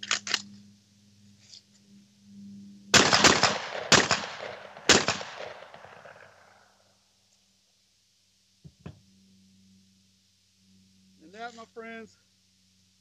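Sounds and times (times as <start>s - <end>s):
shotgun shots echoing: 2.9s - 6.6s.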